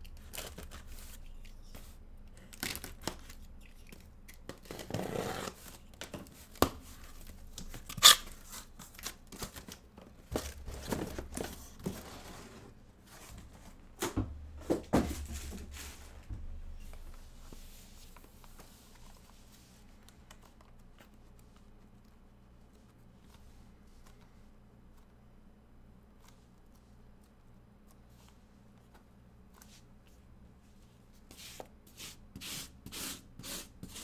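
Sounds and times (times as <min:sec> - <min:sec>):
plastic wrap and cardboard tearing: 0:07.5 - 0:09.8.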